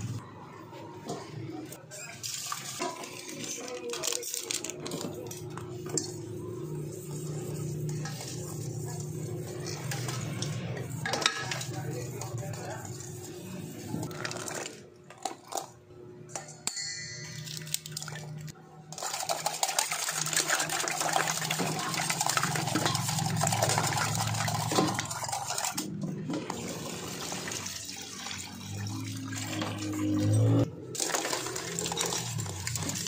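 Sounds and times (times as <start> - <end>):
ice clinking in metal pot: 16.3 - 25.8, 31.0 - 33.0
water pouring into pot: 17.4 - 25.8, 26.5 - 33.0.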